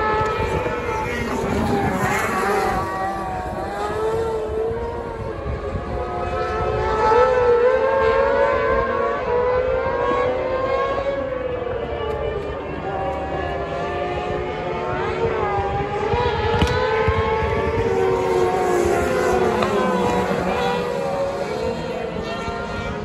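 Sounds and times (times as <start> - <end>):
racing car engine revving: 0.0 - 23.0.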